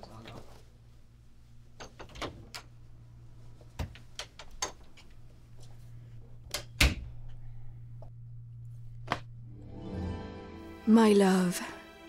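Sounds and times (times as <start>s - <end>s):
low hum: 7.2s - 10.8s.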